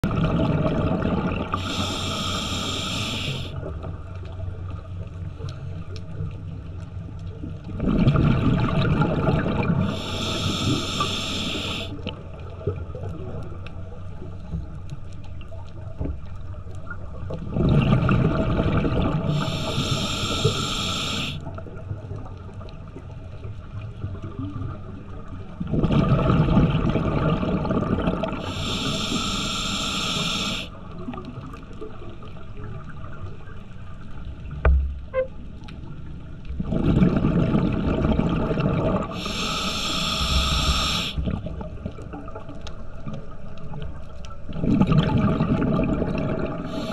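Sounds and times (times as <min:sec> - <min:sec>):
exhaust bubbles rumbling: 0:00.0 - 0:01.8, 0:07.6 - 0:10.8, 0:17.3 - 0:20.6, 0:24.1 - 0:28.7, 0:36.5 - 0:39.4, 0:44.5 - 0:46.9
low water noise: 0:00.0 - 0:46.9
air hissing through regulator: 0:01.5 - 0:03.6, 0:09.8 - 0:12.0, 0:19.3 - 0:21.4, 0:28.4 - 0:30.7, 0:39.1 - 0:41.2, 0:46.7 - 0:46.9.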